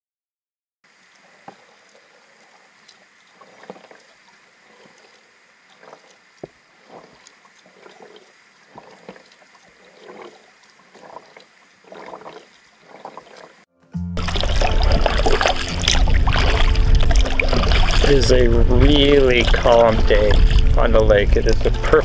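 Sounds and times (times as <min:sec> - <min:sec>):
water splashing against kayak: 0:00.9 - 0:22.0.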